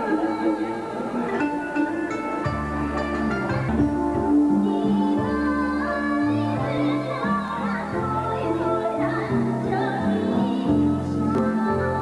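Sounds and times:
low bass notes: 2.5 - 6.8.

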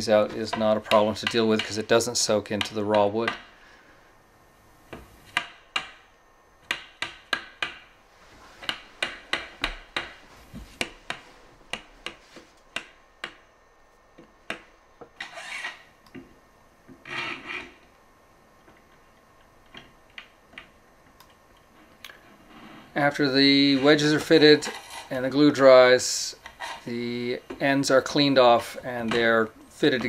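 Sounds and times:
scraping rubs: 24.6 - 25.2.

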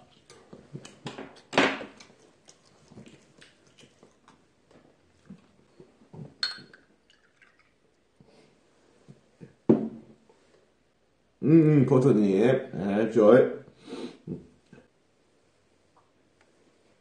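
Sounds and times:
glass clinking on glass: 6.4 - 6.8
liquid pouring into a glass: 6.4 - 7.8.

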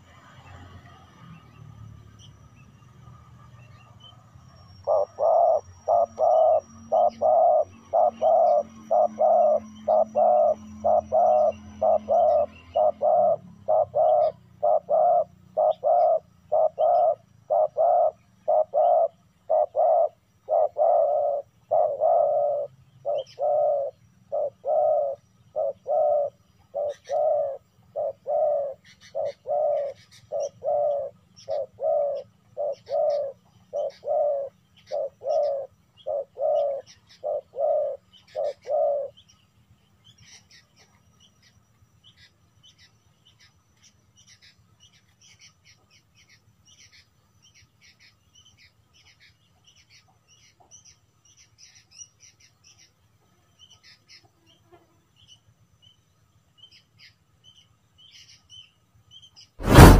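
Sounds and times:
small birds chirping: 0.0 - 59.9
dove cooing: 4.8 - 39.2.

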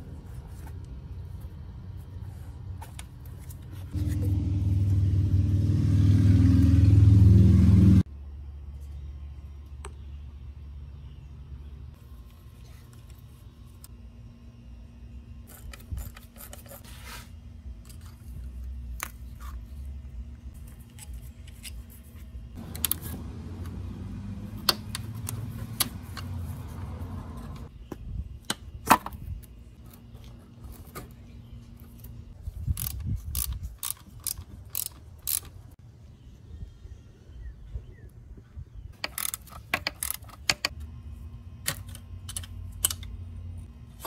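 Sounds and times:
tools and parts clinking: 39.0 - 40.8.

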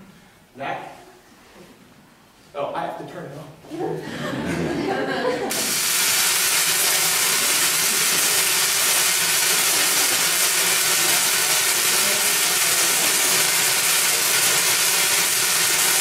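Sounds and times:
tesla coil sparks hissing: 5.5 - 16.0.

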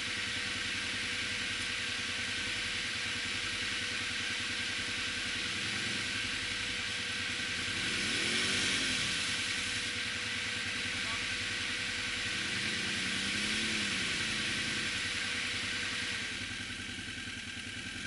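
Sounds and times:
atv engines running: 0.0 - 18.0
quad engine revving: 5.3 - 6.5, 7.4 - 9.9, 12.1 - 17.0.

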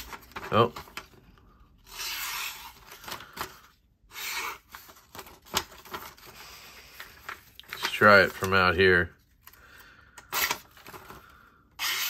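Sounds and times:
paper rustling and clicking: 0.0 - 1.2, 4.7 - 8.8, 10.2 - 12.0
knife slicing paper: 11.8 - 12.0.

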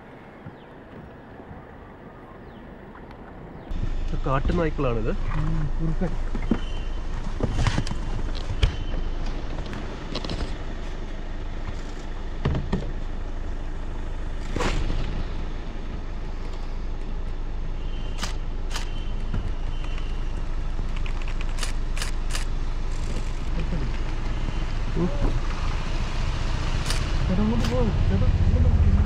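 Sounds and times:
low road rumble: 0.0 - 29.0
car engine running: 3.8 - 29.0
sharp clicks: 20.8 - 23.4, 26.8 - 27.8.

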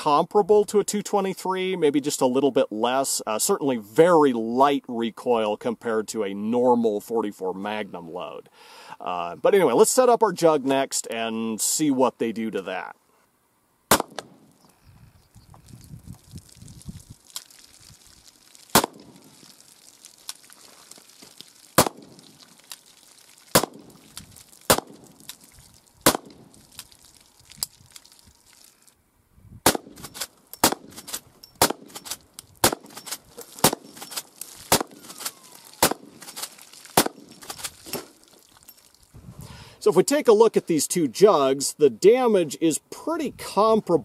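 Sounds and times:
revolver gunshots: 13.9 - 14.5, 18.7 - 19.3, 21.8 - 22.2, 23.5 - 24.0, 24.7 - 25.1, 26.0 - 26.4, 29.6 - 31.0, 31.6 - 32.0, 32.6 - 33.0, 33.6 - 34.0, 34.7 - 36.2, 37.0 - 37.4
rifle gunshots: 13.9 - 14.5, 18.8 - 19.2, 21.8 - 22.2, 23.6 - 24.0, 24.7 - 25.0, 26.0 - 26.4, 29.6 - 30.0, 30.6 - 31.0, 31.6 - 32.0, 32.6 - 33.0, 33.6 - 34.0, 34.7 - 36.2, 37.0 - 37.3.

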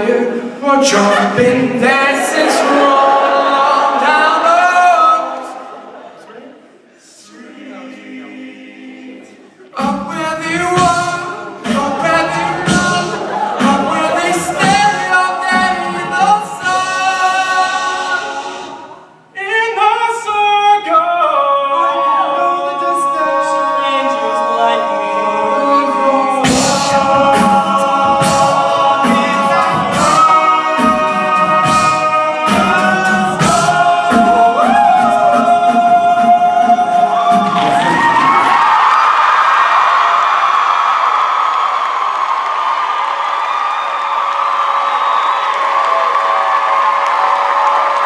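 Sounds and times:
male a cappella group singing: 0.0 - 5.8, 7.0 - 38.0.

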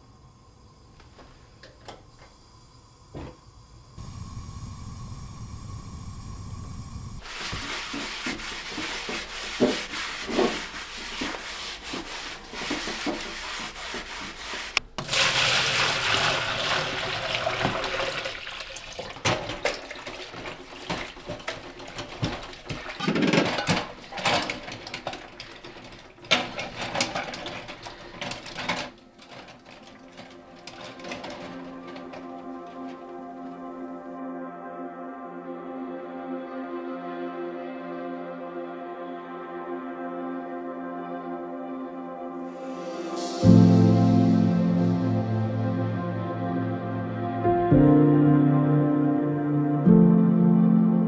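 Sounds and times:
water pouring into basin: 15.0 - 23.0
dishes clinking and knocking: 19.0 - 33.1.

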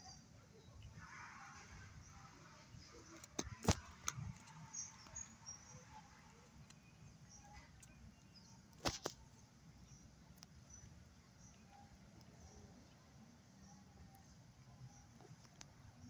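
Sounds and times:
faint high bird chirps: 0.0 - 16.0
sharp clicks: 3.1 - 5.3.

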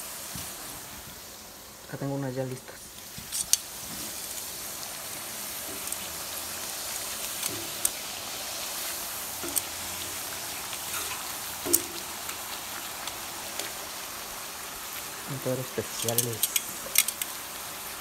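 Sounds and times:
food sizzling in hot oil: 0.0 - 18.0
metal tongs clicking: 16.0 - 17.3.

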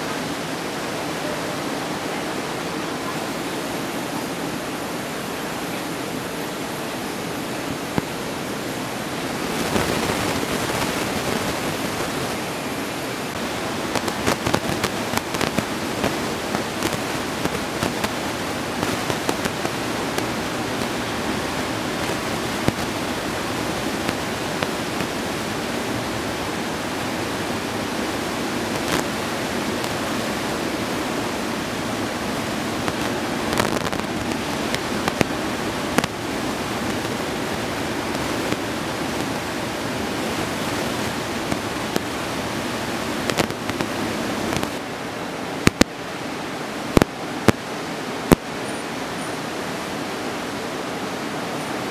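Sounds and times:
ocean surf breaking: 0.0 - 51.3
sharp crackles: 9.3 - 44.8, 45.6 - 45.9.

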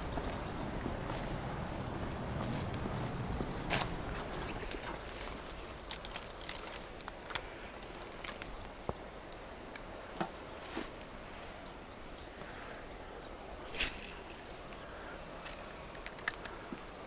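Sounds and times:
low steady rumble: 0.0 - 5.8.

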